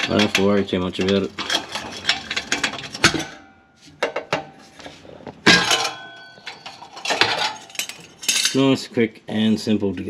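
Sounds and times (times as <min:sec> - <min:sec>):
metal clank with ring: 0:05.5 - 0:06.8.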